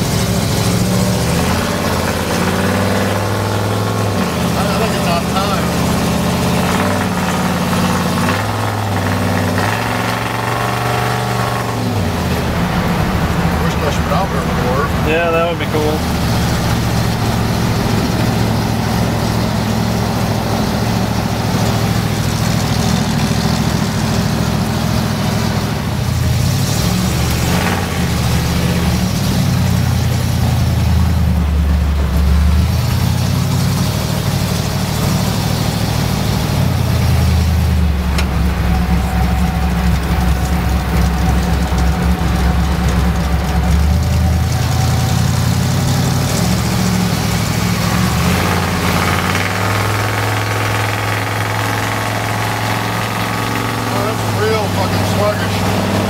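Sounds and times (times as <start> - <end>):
truck engine running: 0.0 - 56.0.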